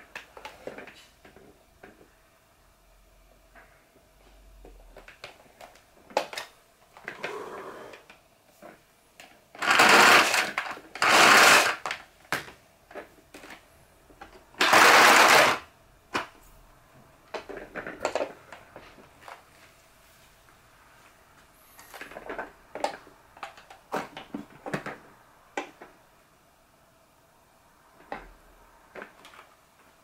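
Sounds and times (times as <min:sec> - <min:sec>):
cord rewinding: 0:09.6 - 0:12.0, 0:14.6 - 0:15.6.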